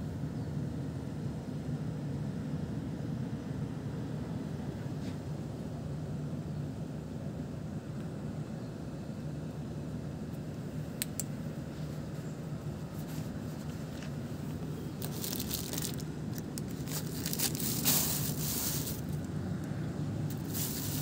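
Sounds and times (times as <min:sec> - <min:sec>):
steady low hum: 0:00.0 - 0:21.0
plastic bag crinkling: 0:14.9 - 0:19.2, 0:20.3 - 0:21.0.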